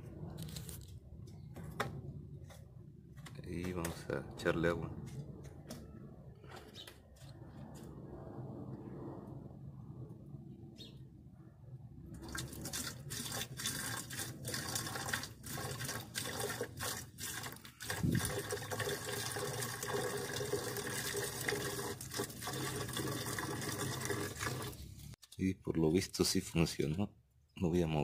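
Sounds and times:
water pouring from jug: 12.2s - 25.1s.

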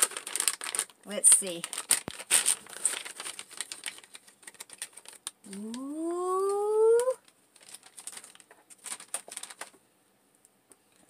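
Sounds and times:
plastic crinkling and rustling: 0.0s - 6.0s, 7.0s - 9.8s.

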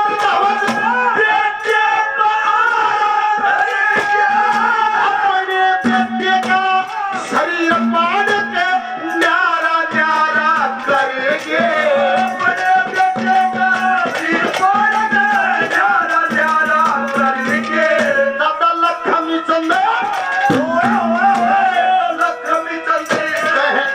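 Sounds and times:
hand drum beats: 0.0s - 1.4s, 3.4s - 23.9s
wavering melody: 20.5s - 23.8s.

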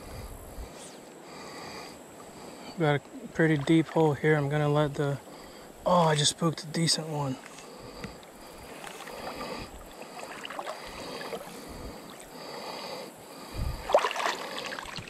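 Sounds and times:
water lapping against canoe hull: 2.2s - 5.6s, 7.4s - 12.8s, 13.4s - 15.0s
small ticks: 7.4s - 9.0s.

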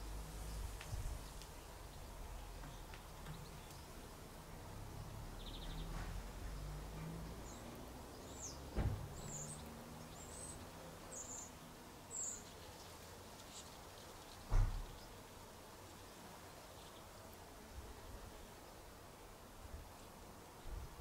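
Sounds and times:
small bird chirping: 7.4s - 15.2s
dull thump: 8.8s - 9.2s, 14.5s - 15.0s.

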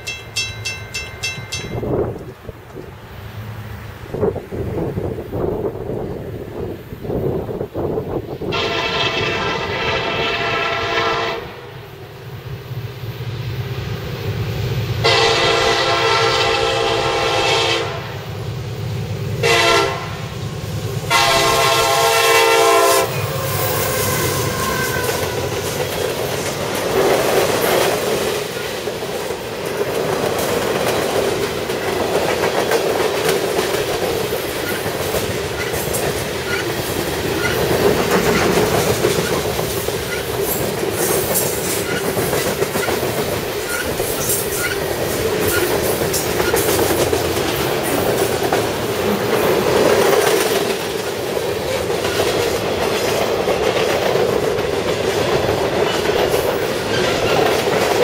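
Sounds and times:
locomotive air horn blasts: 8.5s - 11.7s, 15.0s - 18.2s, 19.4s - 20.2s, 21.1s - 25.5s
train wheels clickety-clack: 20.8s - 58.0s.

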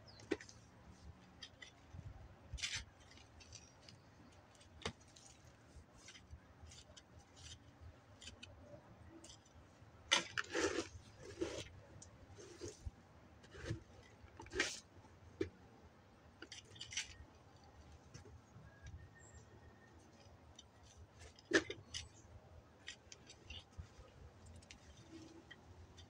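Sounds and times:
garden fork scraping soil: 10.1s - 14.9s.

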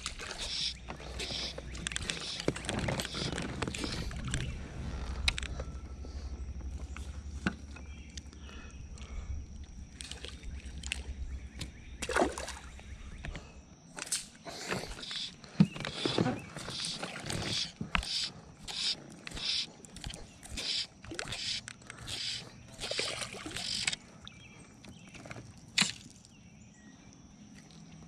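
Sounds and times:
clicks and knocks of fish handling: 0.0s - 4.5s
wind rumbling on microphone: 0.0s - 8.1s.

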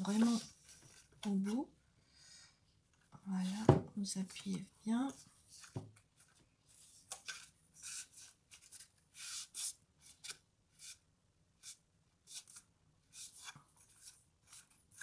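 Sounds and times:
hands rustling and scraping card: 0.0s - 1.6s, 4.4s - 11.0s, 11.6s - 15.0s.

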